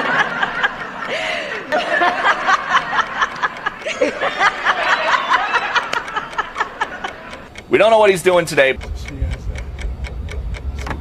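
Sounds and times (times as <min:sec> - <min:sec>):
people clapping: 0:00.0 - 0:07.5
people laughing: 0:00.0 - 0:07.6.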